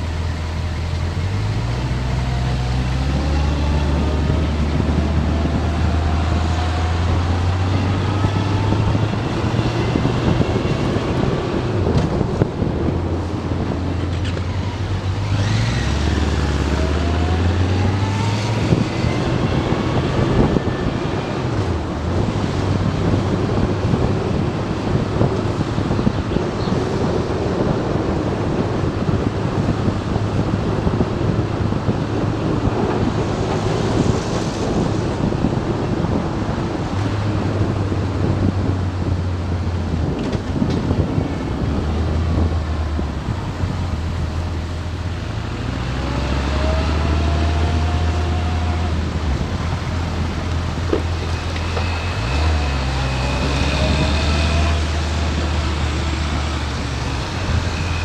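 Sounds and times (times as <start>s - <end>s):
motorcycle engine: 0.0s - 26.7s, 39.1s - 58.0s
wind noise on microphone: 0.0s - 58.0s.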